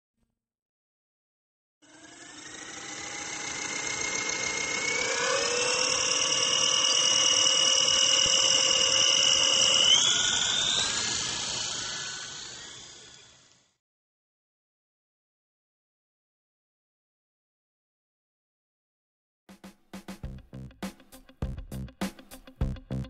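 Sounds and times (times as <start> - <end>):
drone motors whining: 1.8 - 13.8.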